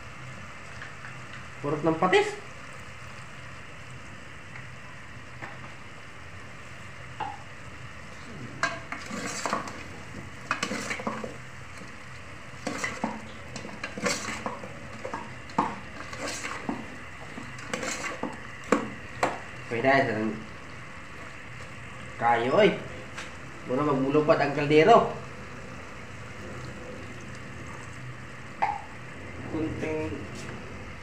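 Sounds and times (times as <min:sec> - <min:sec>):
sauce sizzling: 0:00.0 - 0:29.3
metal spoon scraping a pot: 0:08.6 - 0:09.8, 0:10.4 - 0:11.4, 0:12.6 - 0:18.4.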